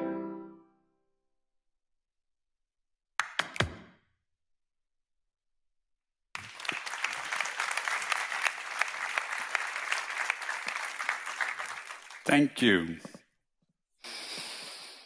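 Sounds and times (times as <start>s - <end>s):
audience applauding: 6.4s - 13.1s.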